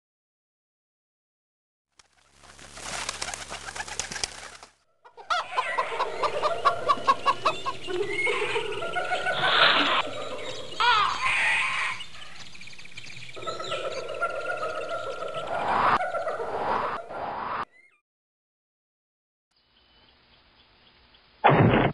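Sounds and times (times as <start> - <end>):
gliding bird calls: 2.1 - 18.0
pulsed bird calls: 2.2 - 18.0
cartoon bird chirps and coos: 5.1 - 12.4, 13.4 - 18.0
burst of noise: 21.4 - 21.9.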